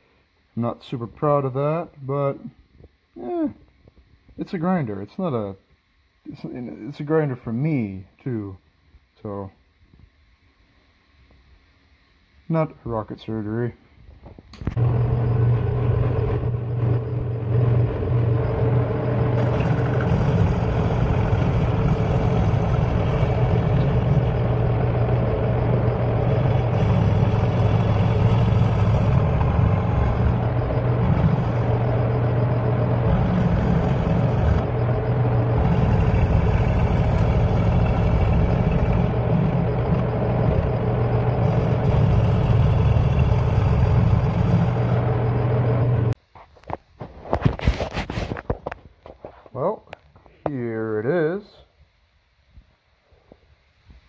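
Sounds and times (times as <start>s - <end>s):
milling machine hum: 14.6s - 46.2s
end mill cutting steel: 14.8s - 46.1s.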